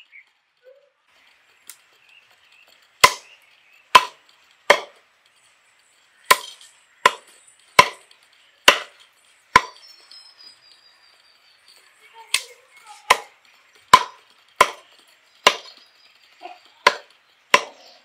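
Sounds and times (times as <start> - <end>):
cleaver chopping on wooden block: 3.0 - 3.3, 3.9 - 5.0, 6.3 - 9.8, 13.1 - 13.3, 13.9 - 15.8, 16.8 - 17.9.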